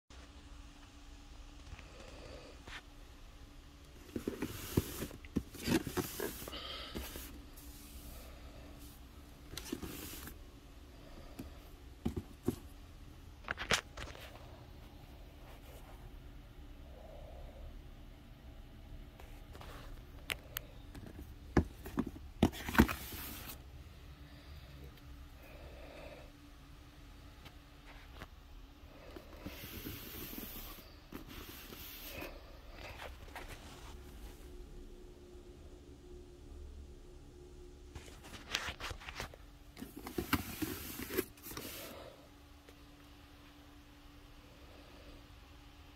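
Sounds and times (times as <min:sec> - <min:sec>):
cardboard rustle: 0:04.0 - 0:07.7, 0:38.0 - 0:41.9
hand touching cardboard box: 0:04.0 - 0:08.0
handling noise rustling: 0:04.0 - 0:10.4, 0:21.0 - 0:23.6, 0:29.1 - 0:34.4, 0:38.0 - 0:42.0.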